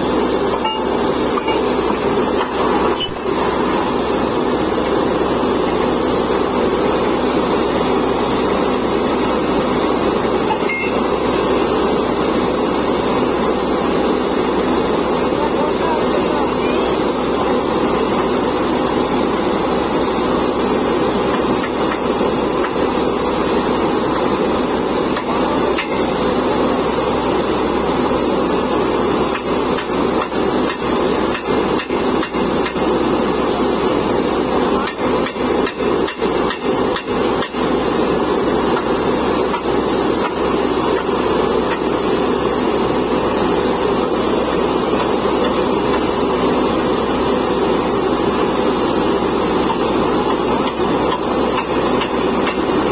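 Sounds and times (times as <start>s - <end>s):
engine and air compressor drone: 0.0s - 52.9s
drill hammer pounding: 19.4s - 26.8s, 29.1s - 52.9s.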